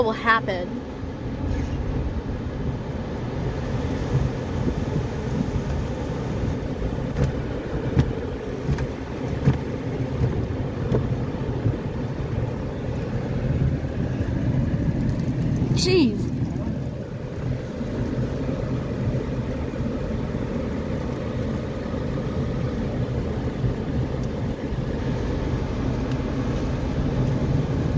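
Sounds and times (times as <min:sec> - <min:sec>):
low rumble: 0:00.3 - 0:27.9
cloth strips slapping car body: 0:07.0 - 0:11.2.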